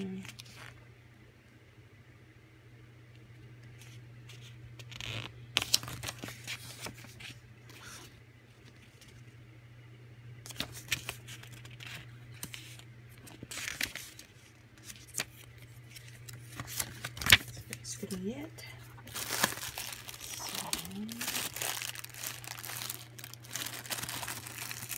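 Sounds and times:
steady low hum: 0:00.0 - 0:24.9
paper pages rustling: 0:03.7 - 0:09.3, 0:10.5 - 0:17.9, 0:19.0 - 0:24.9.

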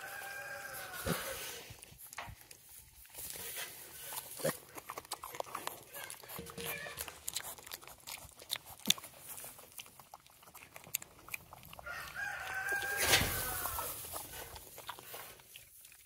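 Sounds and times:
rooster crowing: 0:00.0 - 0:01.4, 0:11.8 - 0:14.0
straw crackling and rustling: 0:00.0 - 0:16.0.

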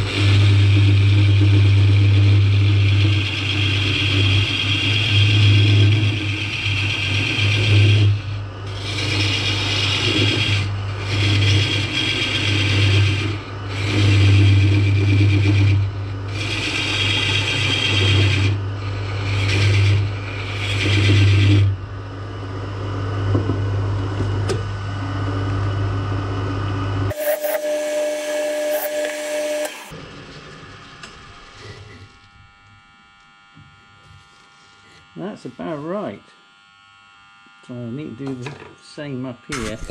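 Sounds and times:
turning tool cutting wood: 0:00.0 - 0:21.8, 0:27.1 - 0:30.0
lathe motor hum: 0:00.0 - 0:37.6.

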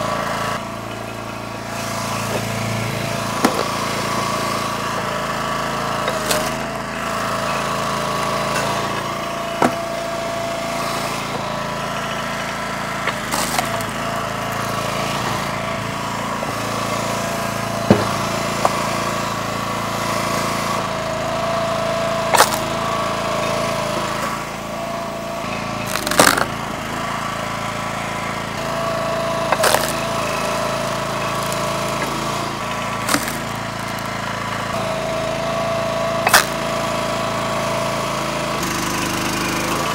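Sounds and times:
log splitter engine running: 0:00.0 - 0:39.9
split wood pieces thrown: 0:13.1 - 0:15.5, 0:22.3 - 0:22.8, 0:25.8 - 0:26.6, 0:29.5 - 0:30.1, 0:33.0 - 0:34.2, 0:36.3 - 0:36.6
wood splitting cracks: 0:13.1 - 0:15.5, 0:22.3 - 0:22.8, 0:25.8 - 0:27.0, 0:29.5 - 0:30.0, 0:31.3 - 0:34.2, 0:36.3 - 0:36.6.

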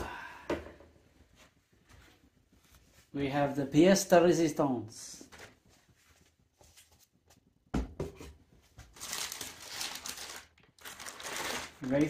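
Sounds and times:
tissue paper rustling: 0:08.8 - 0:12.0.

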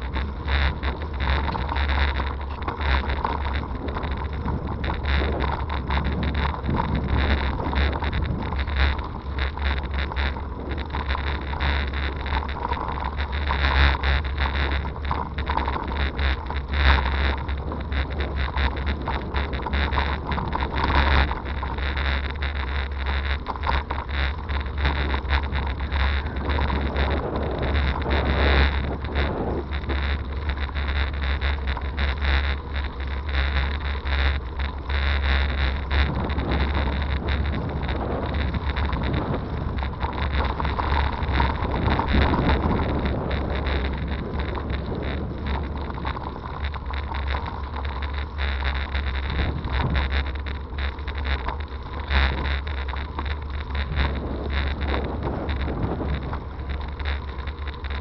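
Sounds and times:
wind buffeting microphone: 0:00.0 - 0:12.0, 0:24.2 - 0:32.1, 0:34.5 - 0:47.3, 0:48.7 - 0:51.4, 0:53.7 - 0:58.0
bicycle on gravel rumbling: 0:00.0 - 0:58.0
bicycle rattles and knocks: 0:00.0 - 0:58.0.

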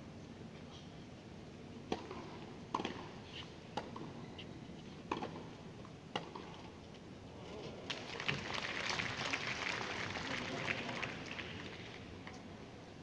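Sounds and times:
faint background hum: 0:00.0 - 0:13.0
tennis ball hitting rackets: 0:01.9 - 0:03.1.

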